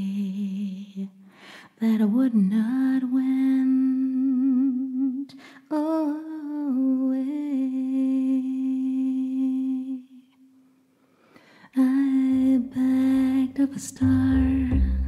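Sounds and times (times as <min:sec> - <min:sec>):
woman singing long notes: 0:11.8 - 0:15.0.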